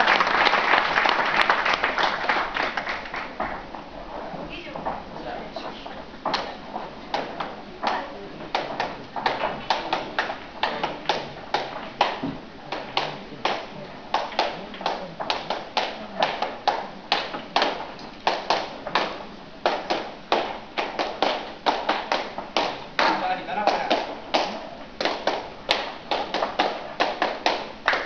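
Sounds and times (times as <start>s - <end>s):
sharp hand claps and taps: 7.1s - 28.0s.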